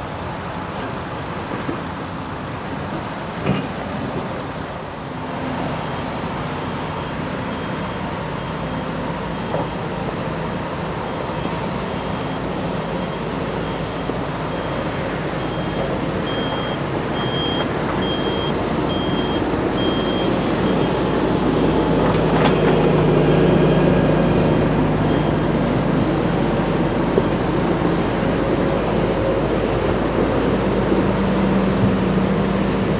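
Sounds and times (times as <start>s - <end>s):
diesel engines running: 0.0s - 32.9s
reversing alarm beeping: 10.9s - 21.2s.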